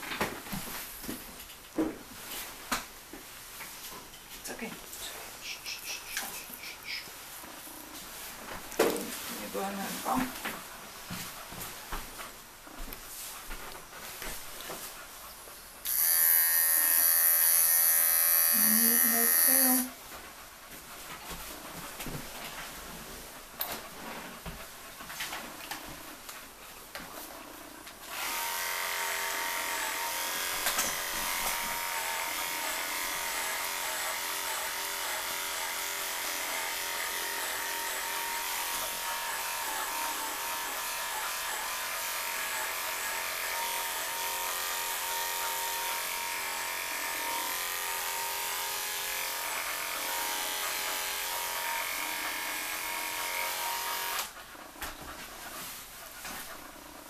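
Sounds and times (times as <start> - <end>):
electric clippers buzzing: 15.8 - 19.9, 28.1 - 54.3.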